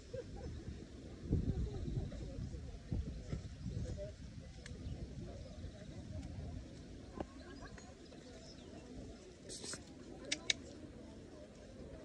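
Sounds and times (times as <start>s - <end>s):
low murmur of distant activity: 0.0s - 12.0s
short hissing scrape: 9.5s - 9.9s
sharp clicks: 9.6s - 10.7s.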